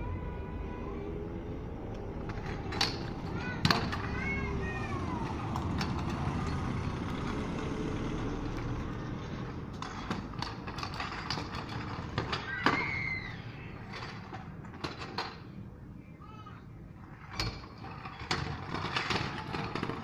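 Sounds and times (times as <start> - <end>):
scooter clacking on pavement: 2.0 - 15.6, 17.0 - 20.0
car driving past: 4.4 - 9.6.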